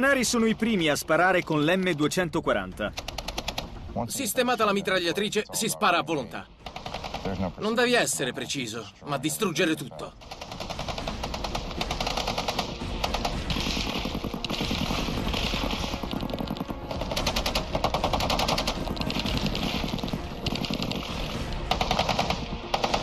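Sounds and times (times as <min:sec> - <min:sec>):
machine gun automatic bursts: 0:06.6 - 0:07.4, 0:10.2 - 0:23.0.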